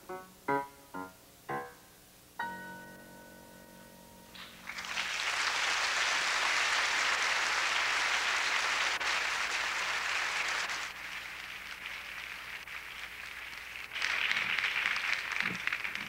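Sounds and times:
grand piano chord ringing: 0.0 - 4.6
audience applause: 4.4 - 16.0.

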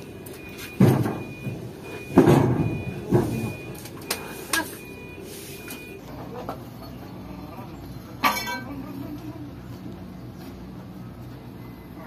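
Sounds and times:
loud metal clunk: 0.8 - 3.7.

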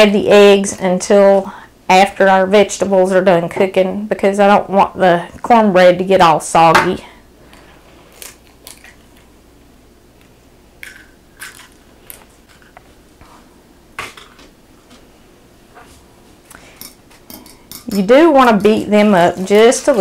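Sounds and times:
eggshells cracking: 8.1 - 9.3, 10.8 - 12.8.

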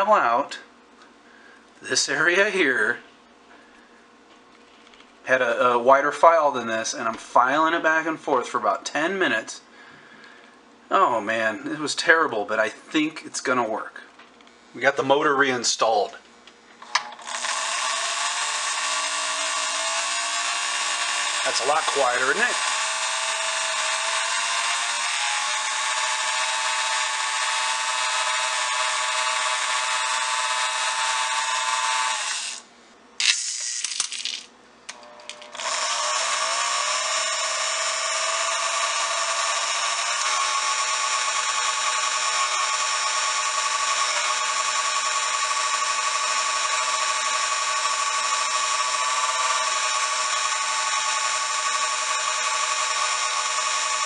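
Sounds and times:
small electric motor whining: 17.0 - 32.6, 35.0 - 54.0.

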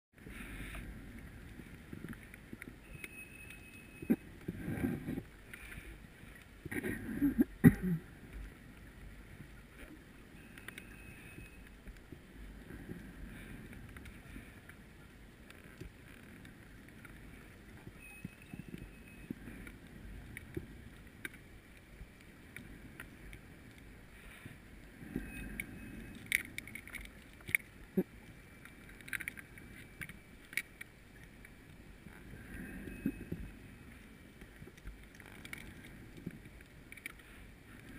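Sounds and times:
muffled underwater noise: 3.5 - 37.9.

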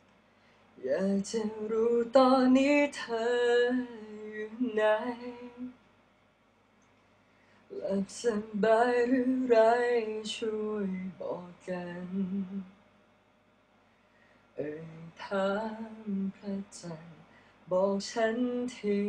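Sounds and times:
man singing unaccompanied: 0.8 - 5.8, 7.7 - 12.8, 14.6 - 19.0.

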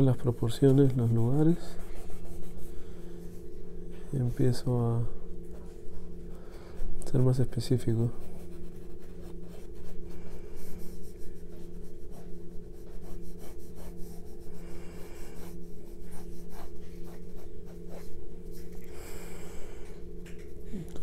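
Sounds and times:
low hum: 0.0 - 21.0
pencil scratching on paper: 0.3 - 3.3, 8.2 - 18.7.

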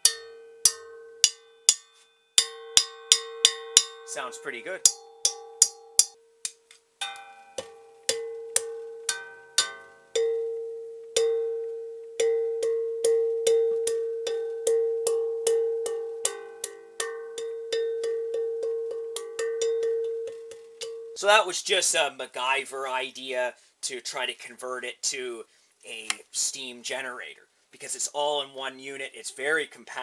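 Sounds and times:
metal rod striking steel shell: 0.0 - 10.5, 12.2 - 21.2.

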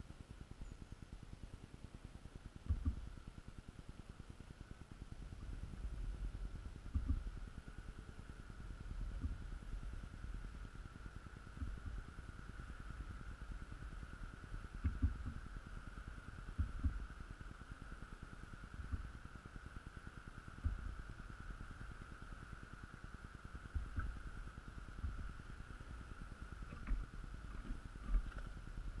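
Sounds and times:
faint high hum: 0.0 - 29.0
woodpecker pecking knocks: 2.7 - 3.1, 6.9 - 7.3.

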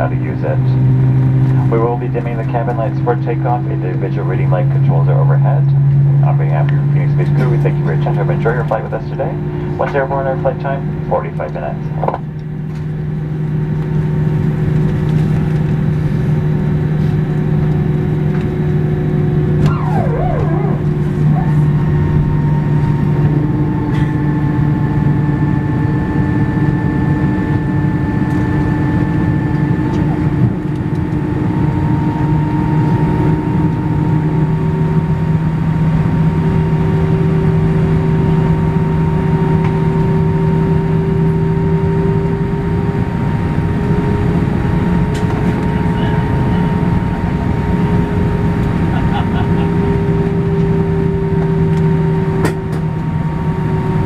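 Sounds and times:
jet engines droning: 0.0 - 54.0
steady tones: 18.8 - 26.8
wavering squeal: 19.6 - 23.8.

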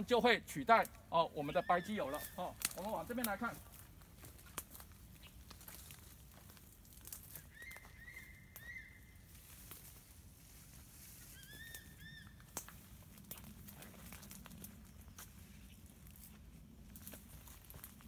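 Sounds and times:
footsteps through dry undergrowth: 0.0 - 18.0
bird calling clear notes: 1.1 - 3.6, 7.3 - 9.4, 11.2 - 12.7.

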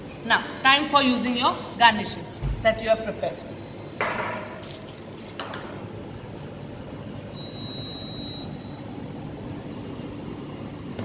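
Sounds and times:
low machinery hum: 0.0 - 11.0
high-pitched beep: 7.4 - 8.5.

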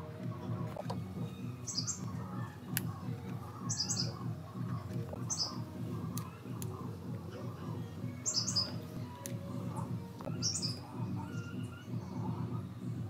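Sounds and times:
low background hum: 0.0 - 13.0
high bird chirps: 1.3 - 2.2, 3.6 - 4.2, 5.3 - 5.6, 8.2 - 8.8, 10.2 - 12.3.

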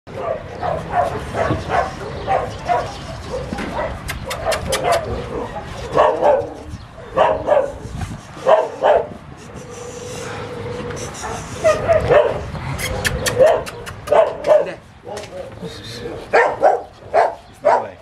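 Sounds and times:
puppies yipping and whining: 9.4 - 14.3.

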